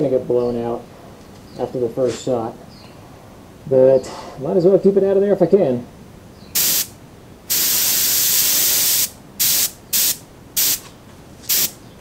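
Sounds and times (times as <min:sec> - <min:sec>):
airbrush hissing: 0:06.6 - 0:06.9, 0:07.5 - 0:10.8, 0:11.5 - 0:11.8.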